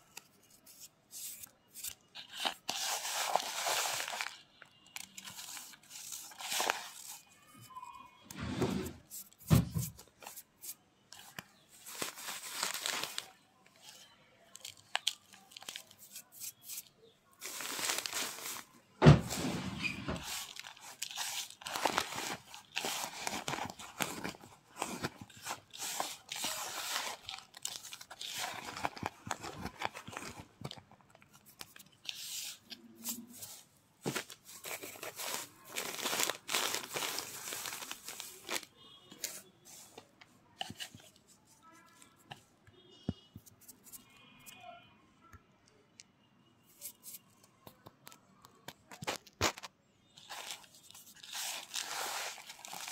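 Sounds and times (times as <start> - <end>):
plastic sheet crinkling: 1.2 - 7.6, 8.8 - 39.9, 48.9 - 52.9.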